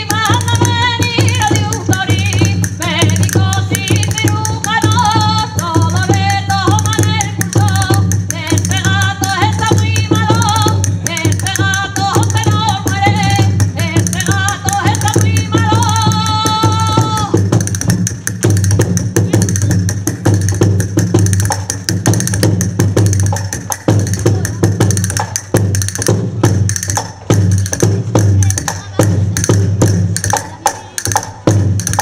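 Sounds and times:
woman singing folk tune: 0.0s - 17.4s
frame drum beating: 0.0s - 32.0s.

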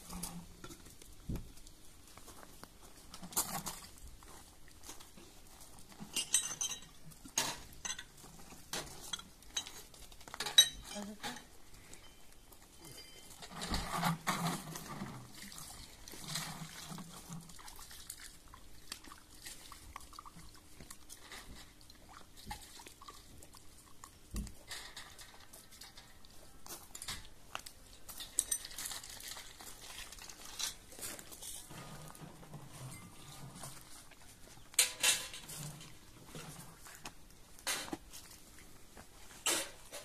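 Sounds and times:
metal dishes clinking: 6.1s - 8.1s, 10.4s - 12.2s, 34.8s - 35.8s
water splashing and pouring: 13.7s - 26.3s.

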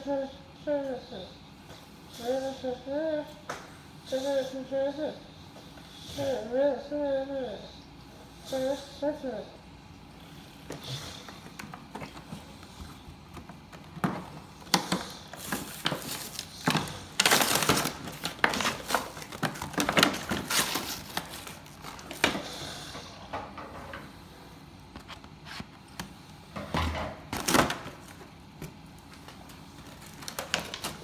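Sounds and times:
toy packaging crinkling and tearing: 15.4s - 22.2s, 29.5s - 31.0s.

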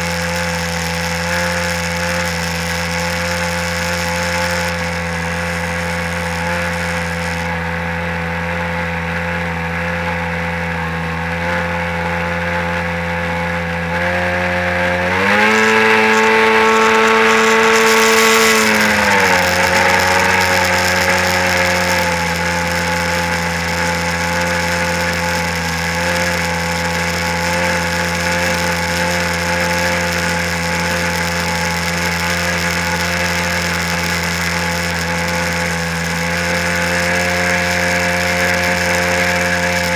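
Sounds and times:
jet ski engine running: 0.0s - 39.9s.

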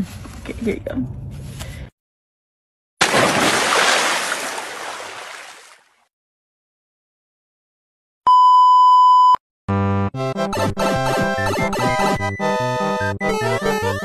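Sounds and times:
splash into water: 3.0s - 6.0s.

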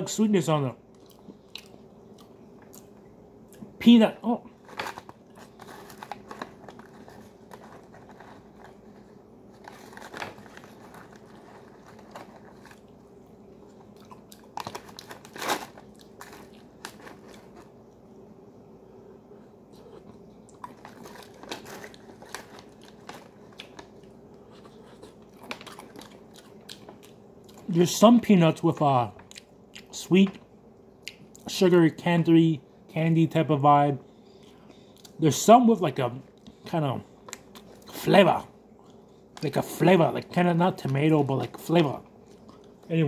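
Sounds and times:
person chewing crunchy nuts: 0.9s - 3.7s, 4.6s - 17.8s, 19.7s - 27.7s, 42.2s - 42.9s
paper pouch crinkling: 4.6s - 13.0s, 14.6s - 17.7s, 20.6s - 24.0s.

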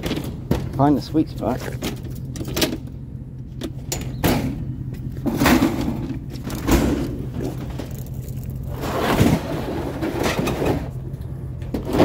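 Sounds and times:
engine idling hum: 0.0s - 12.0s.

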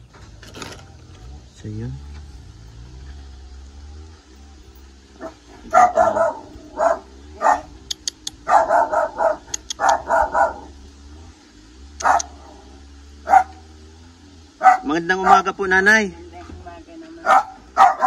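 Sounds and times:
dog barking: 5.2s - 10.8s, 12.0s - 12.6s, 13.2s - 13.7s, 14.6s - 15.6s, 17.2s - 18.0s.

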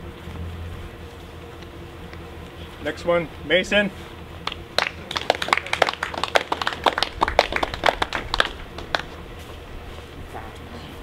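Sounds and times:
people clapping: 4.4s - 9.2s.

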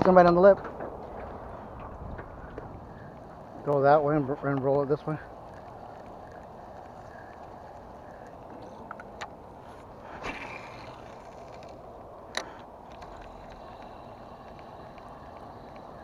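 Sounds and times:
wind and water hiss: 0.0s - 16.0s
fishing rod swish: 10.2s - 11.6s.

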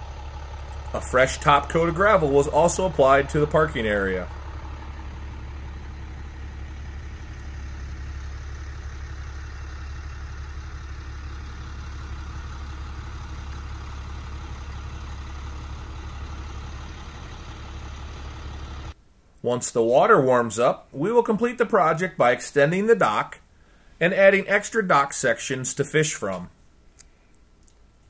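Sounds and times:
engine idling: 0.0s - 19.0s
faint hiss: 19.0s - 28.0s.

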